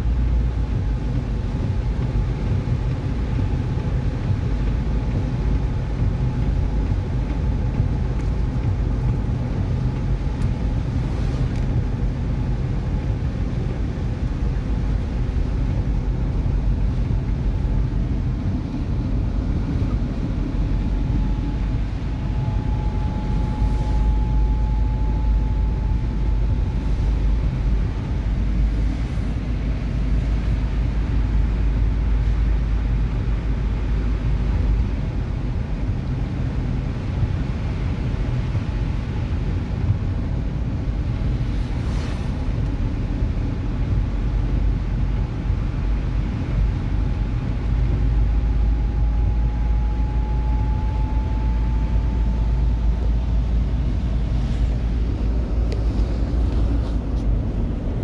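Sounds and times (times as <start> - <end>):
car engine rumble from inside: 0.0 - 58.0
faint thin whine: 19.4 - 31.6, 48.1 - 58.0
tyres hissing on wet road: 41.0 - 48.7.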